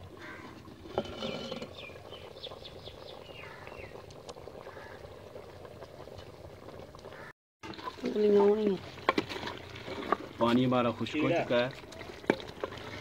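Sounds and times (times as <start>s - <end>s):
small birds chirping: 1.7s - 4.0s.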